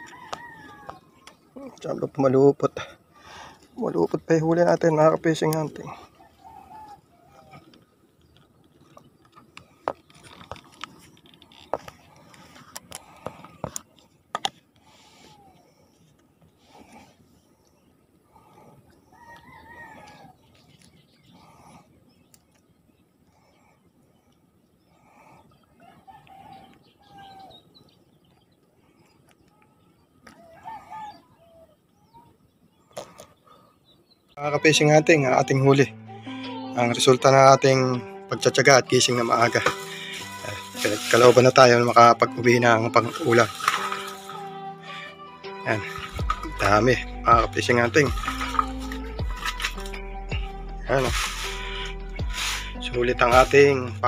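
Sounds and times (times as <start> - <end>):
faint bird calls: 5.8 - 13.9, 14.8 - 34.4
hands rustling fishing line: 38.9 - 45.0, 45.6 - 46.9, 47.8 - 50.1, 50.9 - 53.9.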